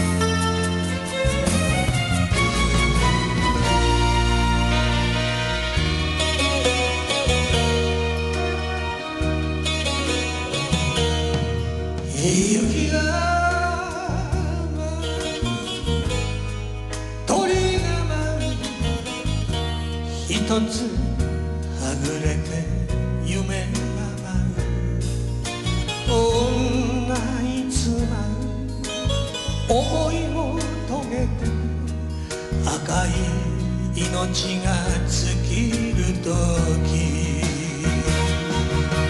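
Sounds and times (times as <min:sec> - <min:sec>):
instrumental accompaniment: 0:00.0 - 0:39.0
man singing with vibrato: 0:12.0 - 0:16.1, 0:17.3 - 0:24.8, 0:26.0 - 0:39.0.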